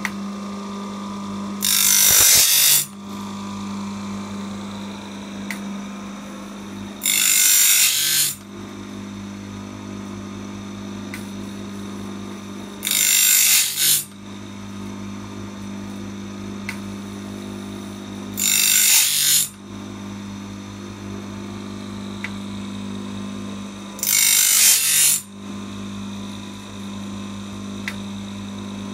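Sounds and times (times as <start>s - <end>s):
electric motor hum: 0.0s - 28.9s
wheel grinding blade teeth: 1.6s - 2.9s, 12.8s - 14.1s.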